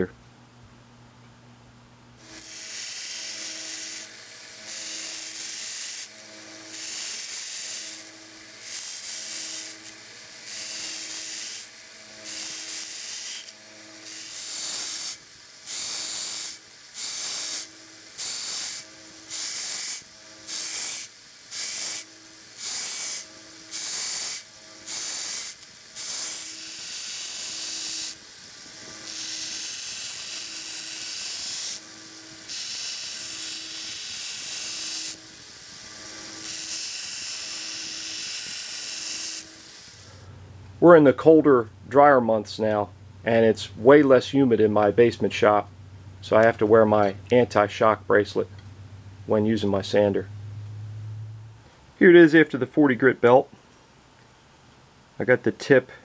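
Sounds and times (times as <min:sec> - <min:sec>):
steel grinding on belt sander: 0:02.2 - 0:40.2
sander motor running: 0:02.2 - 0:40.4.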